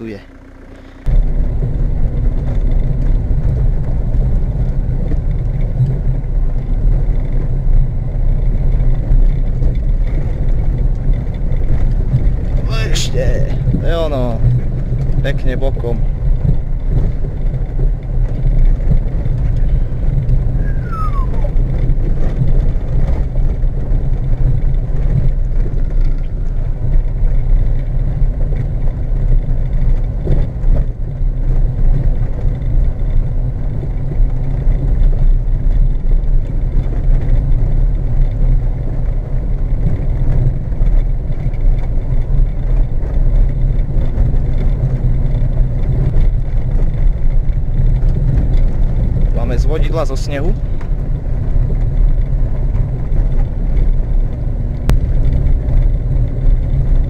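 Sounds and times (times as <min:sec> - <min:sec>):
car engine and road rumble: 0:00.0 - 0:57.0
brief falling whistle: 0:20.6 - 0:21.6.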